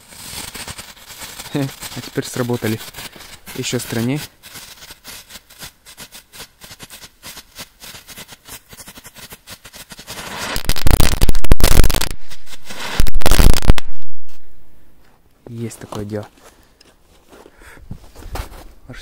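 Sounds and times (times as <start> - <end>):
firecrackers crackling pops: 0.0 - 14.8
very loud firecracker blasts: 6.8 - 14.8.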